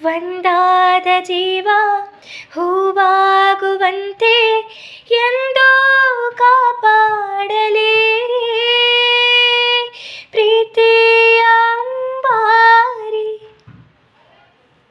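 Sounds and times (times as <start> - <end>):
woman singing unaccompanied: 0.0 - 13.6
singer's breath: 4.7 - 5.1.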